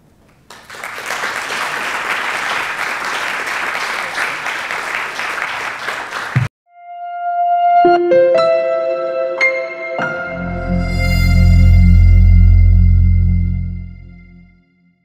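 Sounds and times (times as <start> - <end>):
audience applauding: 0.3 - 6.5
sustained musical note: 6.7 - 14.6.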